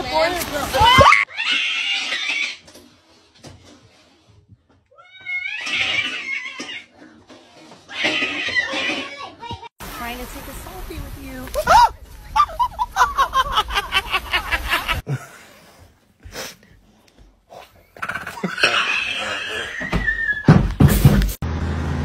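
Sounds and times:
hose spraying water: 9.8s - 11.7s.

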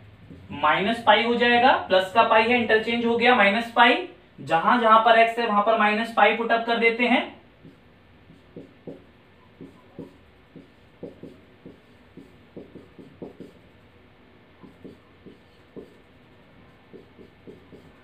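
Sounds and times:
marker writing on whiteboard: 0.2s - 0.6s, 7.6s - 13.9s, 14.6s - 18.0s.

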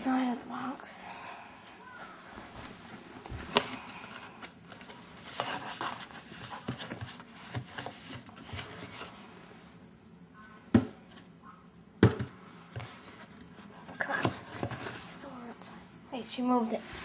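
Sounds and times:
cardboard box rustling and scraping: 3.3s - 9.2s.

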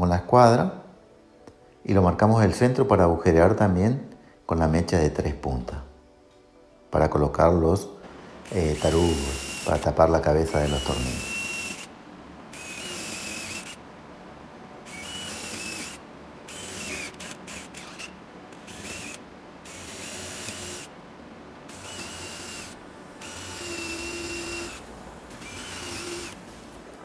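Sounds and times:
cordless drill whining: 8.4s - 9.9s, 10.5s - 11.9s, 12.5s - 13.8s, 14.8s - 20.9s, 21.7s - 24.8s, 25.4s - 26.4s.

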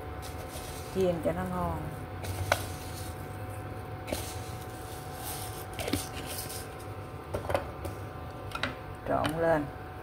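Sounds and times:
induction cooker hum and whine: 0.0s - 10.0s
seeds pattering onto batter: 0.1s - 7.0s.

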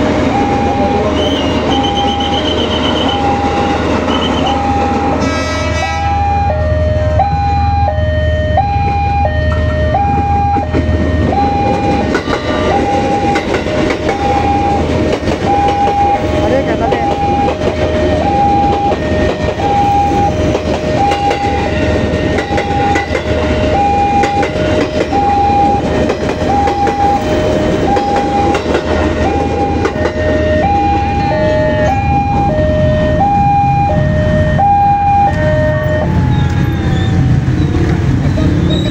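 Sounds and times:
electric train rumbling past: 0.0s - 38.9s
second crossing signal chiming: 0.3s - 5.2s
train wheel clatter: 9.5s - 30.8s.

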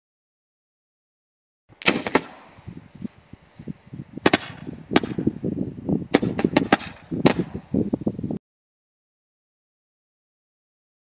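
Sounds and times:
rough noise between shots: 1.7s - 7.9s.

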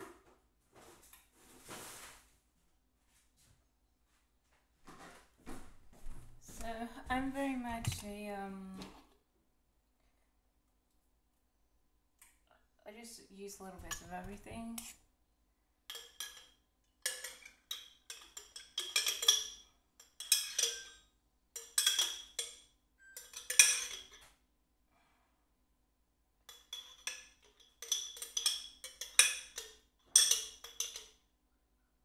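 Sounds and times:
kitchen utensils clinking: 15.9s - 24.3s, 26.5s - 31.2s.

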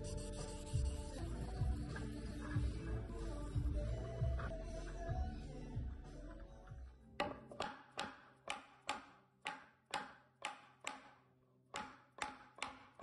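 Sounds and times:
mallet knocking on wood: 7.2s - 13.0s.

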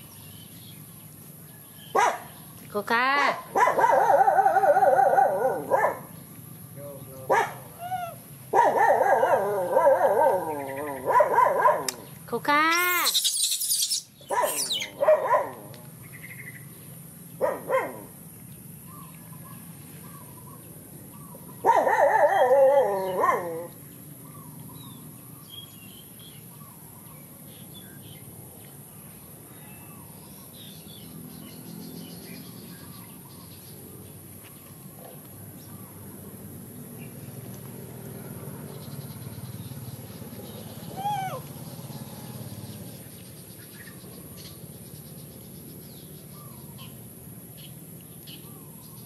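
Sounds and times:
dog barking and yelping: 2.0s - 2.2s, 3.2s - 6.1s, 7.3s - 12.0s, 12.8s - 15.7s, 17.4s - 18.1s, 21.6s - 23.7s.

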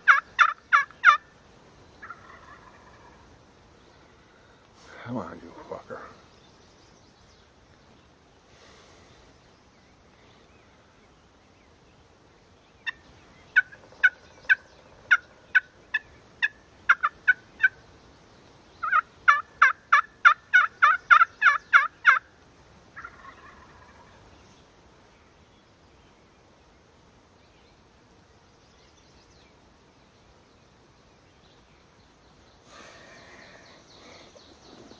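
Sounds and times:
turkey call hen yelps: 0.0s - 1.2s, 18.8s - 22.2s.

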